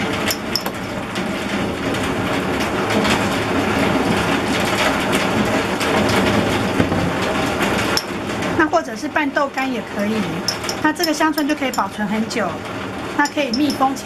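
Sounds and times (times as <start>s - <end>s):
spoon scraping leaves in glass jar: 9.9s - 12.1s, 13.2s - 14.0s.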